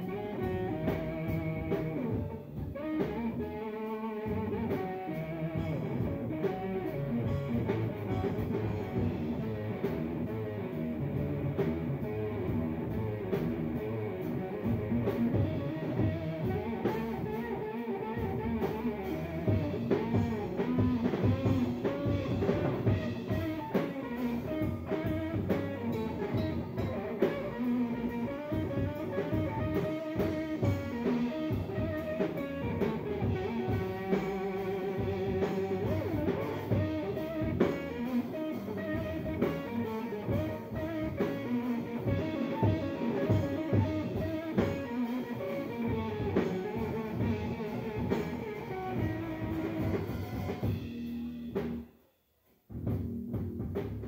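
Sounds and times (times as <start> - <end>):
bass guitar: 0.0 - 52.0, 52.6 - 54.0
electric guitar lead: 0.0 - 52.0
drum kit: 0.0 - 54.0.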